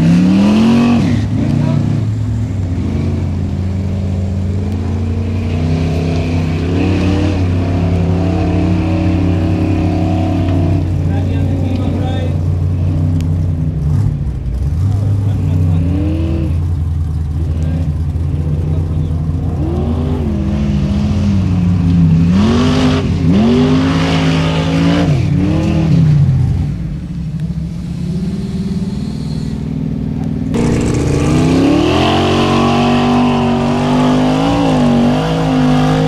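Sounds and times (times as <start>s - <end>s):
engine revving hard: 0.0s - 3.5s, 4.5s - 12.4s, 13.8s - 16.7s, 18.5s - 26.7s, 30.5s - 36.0s.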